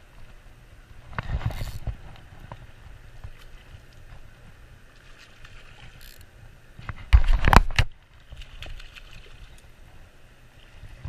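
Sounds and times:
fishing reel handling noise: 0:01.2 - 0:01.9, 0:05.8 - 0:06.3.

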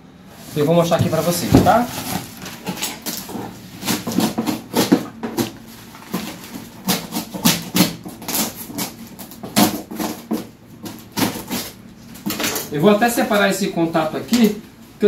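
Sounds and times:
knife cutting packing tape: 0:01.0 - 0:12.6.

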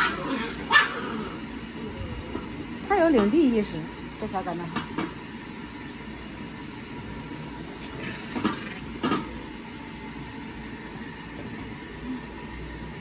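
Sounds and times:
puppies play-fighting: 0:00.0 - 0:02.8
steady background hum: 0:00.0 - 0:13.0.

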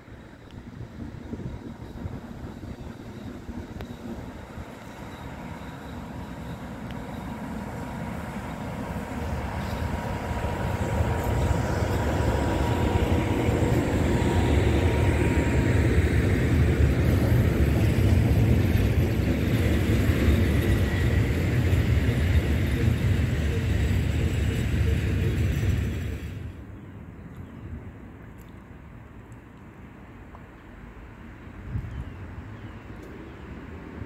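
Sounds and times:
thin steady whine: 0:00.0 - 0:26.3
train wheels rumbling on rails: 0:00.0 - 0:26.7.

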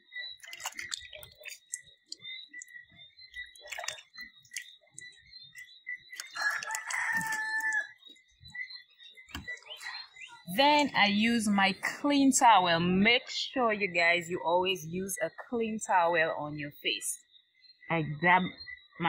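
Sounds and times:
water splashes: 0:00.2 - 0:07.9
rooster crowing: 0:06.3 - 0:08.0.

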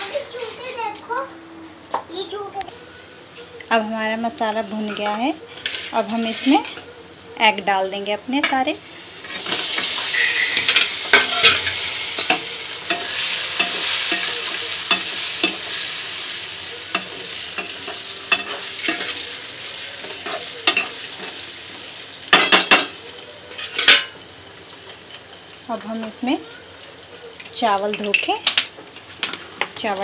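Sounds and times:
eggs sizzling in hot pan: 0:01.7 - 0:30.0
spatula scraping and knocking pan: 0:09.2 - 0:16.1, 0:16.9 - 0:19.4.

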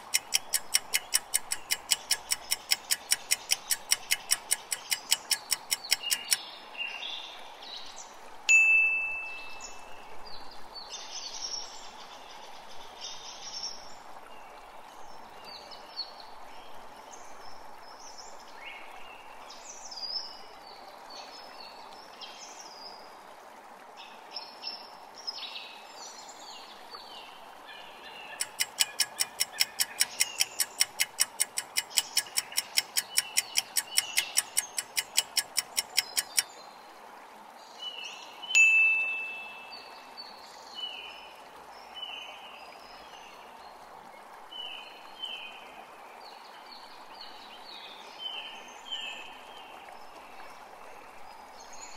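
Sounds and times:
fast clock ticking: 0:00.0 - 0:06.4, 0:28.4 - 0:36.4
birds chirping: 0:00.0 - 0:06.5, 0:28.3 - 0:36.5
bright chime: 0:08.5 - 0:09.8, 0:38.6 - 0:39.8.

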